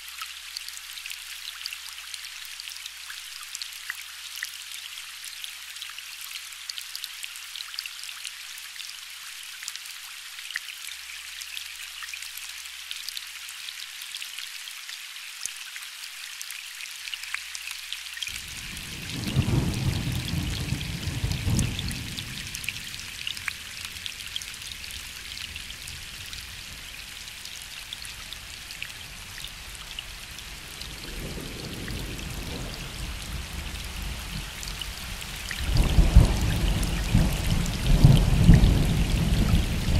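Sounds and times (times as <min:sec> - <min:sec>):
gentle rain patter: 0:00.0 - 0:39.9
distant thunder rumbling: 0:18.4 - 0:23.1.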